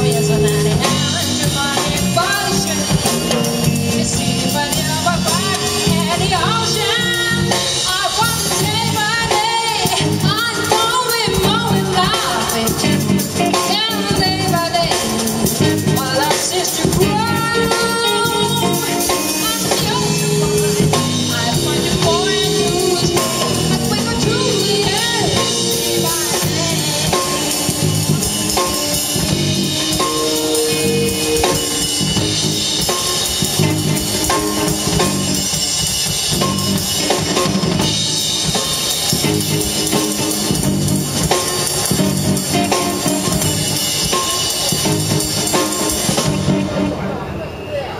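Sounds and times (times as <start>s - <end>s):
person singing: 0.0s - 35.1s
electric bass: 0.0s - 47.0s
drum kit: 0.0s - 47.4s
electric guitar: 0.0s - 47.4s.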